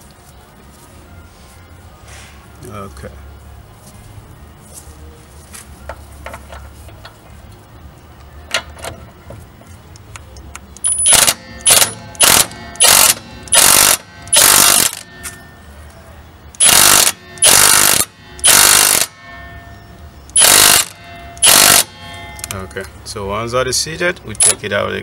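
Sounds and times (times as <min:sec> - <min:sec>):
impact wrench hammering: 0:10.9 - 0:15.4, 0:16.6 - 0:22.5.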